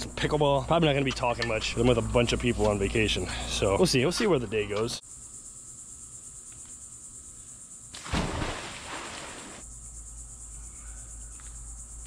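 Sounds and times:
person splashing into pool: 8.0s - 9.6s.

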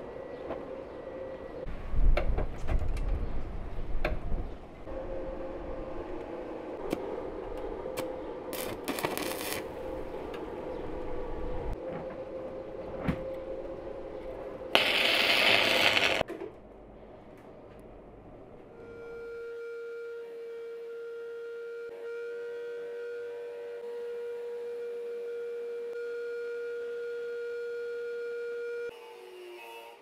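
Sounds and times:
welding hiss: 8.6s - 9.7s, 14.8s - 16.2s
welding arc crackling: 8.6s - 9.8s, 14.7s - 16.2s.

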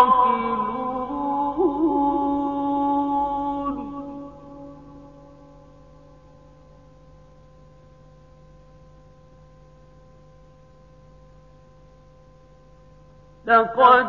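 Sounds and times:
cassette tape hum and hiss: 5.6s - 14.0s.

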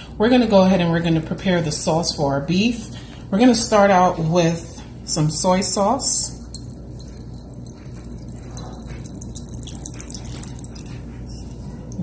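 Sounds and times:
steady low hum: 0.0s - 12.0s
liquid pouring into glass bowl: 6.5s - 11.6s.

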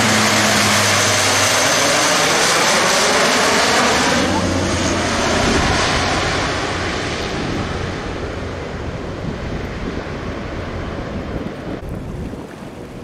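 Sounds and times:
turboprop aircraft passing low: 0.0s - 12.9s
wind noise on microphone: 4.6s - 13.0s.

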